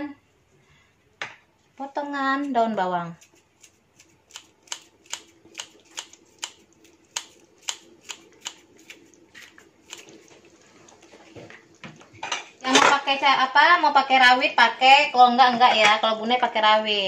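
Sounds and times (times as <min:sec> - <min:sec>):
faint steady hum: 0:00.0 - 0:17.0
scissors snipping: 0:03.3 - 0:10.1.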